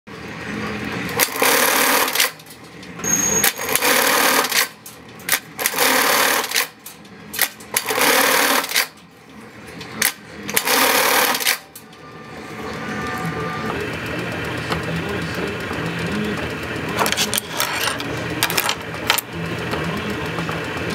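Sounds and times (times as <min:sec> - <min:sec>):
sewing machine rapid stitching: 0:01.2 - 0:02.5, 0:03.4 - 0:04.8, 0:05.6 - 0:06.7, 0:07.7 - 0:08.9, 0:10.5 - 0:11.7
sewing machine sharp clicks: 0:01.2 - 0:02.5, 0:03.4 - 0:06.7, 0:07.4 - 0:09.0, 0:10.0 - 0:11.6.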